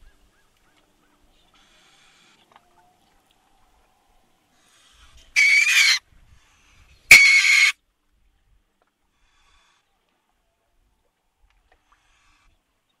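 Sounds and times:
weasel harsh high calls: 0:05.4 - 0:06.0, 0:07.1 - 0:07.8.

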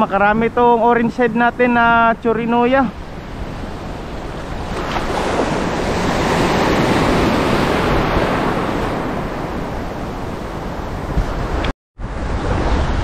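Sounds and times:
sea wave surging: 0:02.7 - 0:13.0
wind rumble on microphone: 0:03.0 - 0:13.0.

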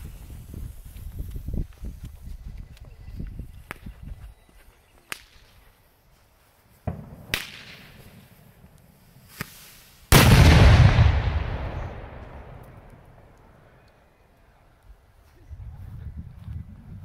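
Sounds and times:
firecracker pops: 0:06.9 - 0:08.3, 0:09.3 - 0:13.4
loud firecracker blast: 0:06.9 - 0:08.4, 0:09.3 - 0:13.2.

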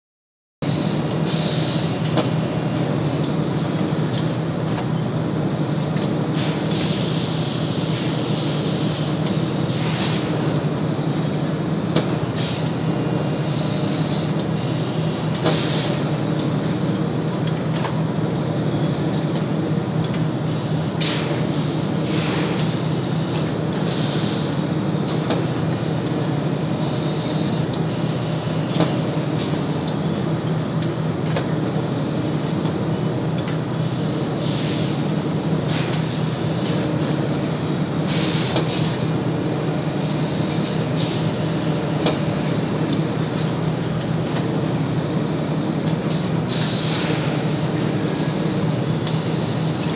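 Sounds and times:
compressed air hisses: 0:46.1 - 0:48.3.

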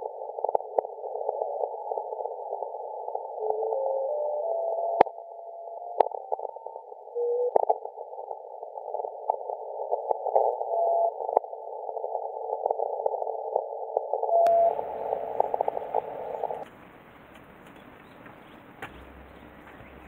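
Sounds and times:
radio hiss: 0:00.0 - 0:04.2, 0:14.4 - 0:20.0
short steady radio beeps: 0:14.3 - 0:17.0
sharp clicks of sferics: 0:14.4 - 0:20.0
wide outdoor hiss: 0:14.5 - 0:20.0.

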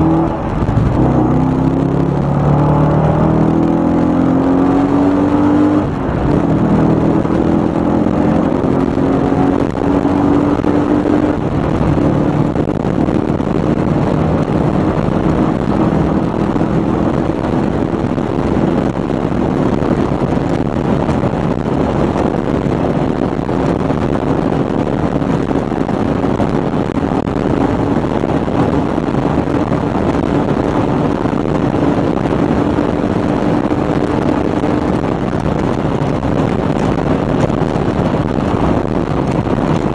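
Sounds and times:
car engine accelerating: 0:00.0 - 0:39.9
wind and road noise: 0:00.0 - 0:39.9.

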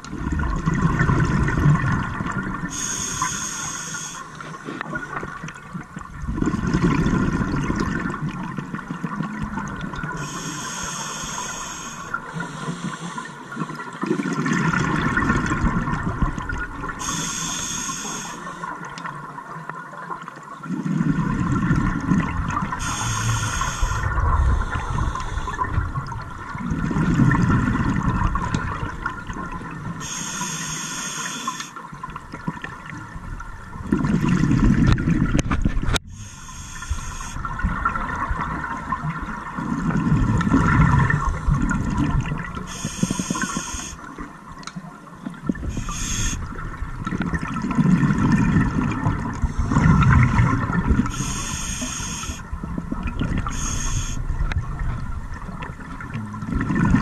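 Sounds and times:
exhaust bubbles rumbling: 0:00.0 - 0:02.7, 0:05.2 - 0:10.2, 0:20.8 - 0:30.0, 0:32.3 - 0:36.1, 0:37.5 - 0:42.7, 0:46.5 - 0:51.1, 0:54.2 - 0:57.0
regulator inhale hiss: 0:02.7 - 0:04.6, 0:10.2 - 0:13.9, 0:17.0 - 0:18.8, 0:22.8 - 0:25.8, 0:30.0 - 0:31.8, 0:36.1 - 0:37.5, 0:42.7 - 0:44.1, 0:45.6 - 0:46.5, 0:51.0 - 0:52.5, 0:53.4 - 0:54.2.

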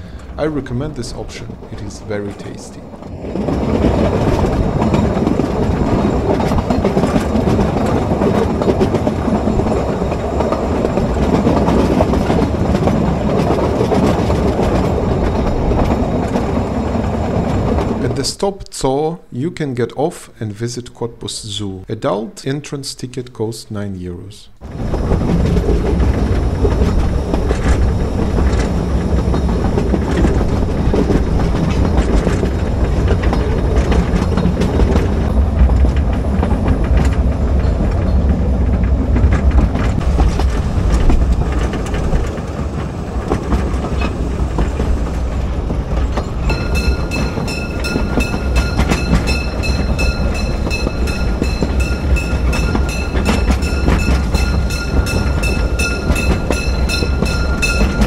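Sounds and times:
wheels clattering over rail joints: 0:00.0 - 0:18.3, 0:24.6 - 0:58.0
train rumbling: 0:00.0 - 0:23.7, 0:24.5 - 0:58.0
high pulsing ringing tone: 0:46.5 - 0:58.0.

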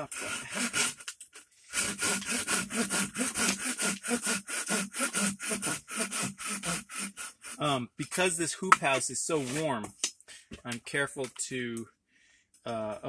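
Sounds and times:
handsaw cutting wood: 0:00.0 - 0:09.8.

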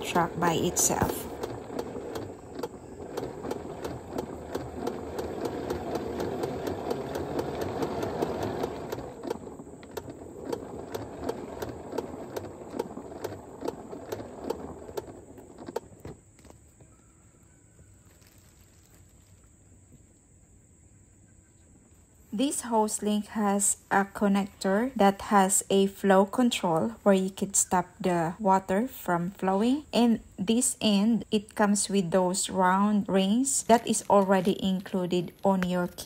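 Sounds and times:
hose reel whirring: 0:00.0 - 0:15.9.

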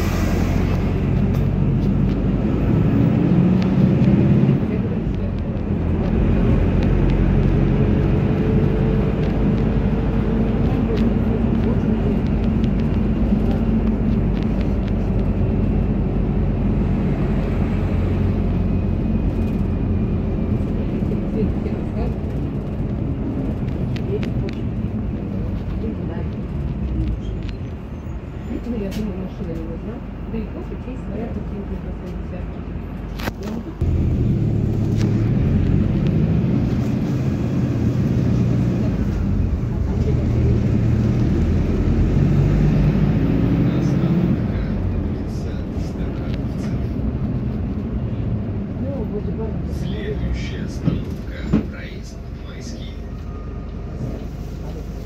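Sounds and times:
bus engine drone: 0:00.0 - 0:55.0
road noise: 0:00.0 - 0:55.0.

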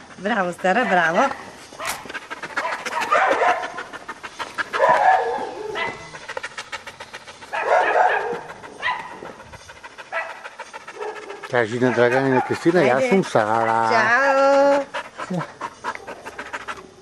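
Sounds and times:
dog barking: 0:00.8 - 0:03.9, 0:04.7 - 0:06.2, 0:07.5 - 0:09.3, 0:10.1 - 0:14.1.

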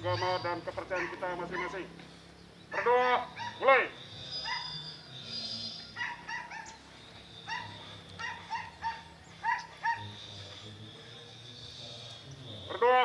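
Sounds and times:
animal yelping calls: 0:00.0 - 0:01.9, 0:02.7 - 0:05.1, 0:05.8 - 0:06.8, 0:07.4 - 0:10.2.

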